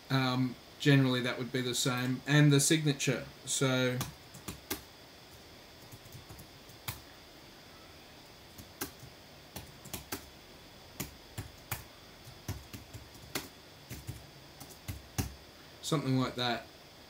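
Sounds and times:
keyboard typing: 3.9 - 4.8, 5.8 - 7.0, 8.5 - 10.3, 11.0 - 15.3.

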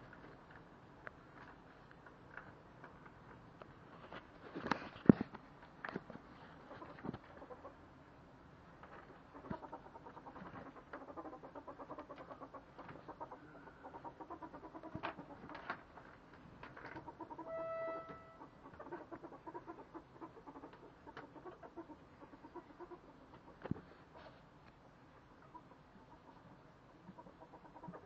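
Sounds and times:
ferrets clucking chatter: 9.1 - 24.3, 25.3 - 28.0
brief steady squeak: 17.4 - 18.5.

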